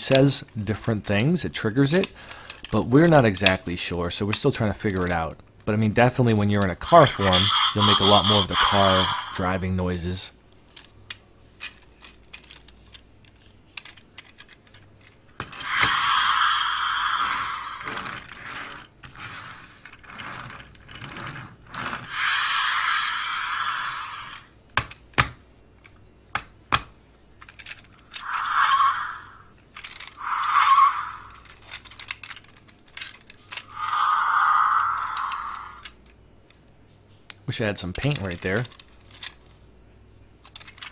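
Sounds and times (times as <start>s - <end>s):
plastic toy parts clicking and rattling: 0.0s - 9.6s, 10.6s - 19.2s, 19.8s - 36.6s, 37.3s - 39.6s, 40.4s - 40.9s
toy electronic car sound effects: 6.8s - 9.6s, 15.5s - 18.2s, 22.0s - 24.5s, 28.2s - 31.8s, 33.5s - 36.0s.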